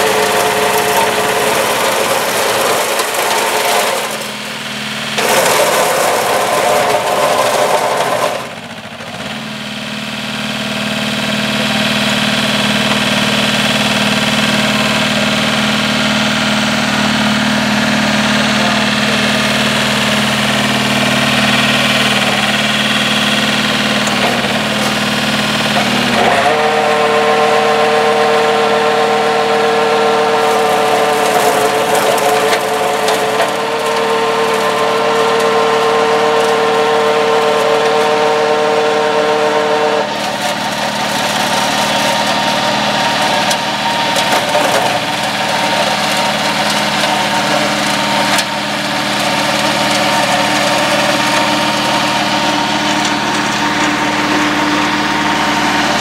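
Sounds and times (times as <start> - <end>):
diesel engine under load: 0.0 - 56.0
flail mower cutting brush: 0.0 - 56.0.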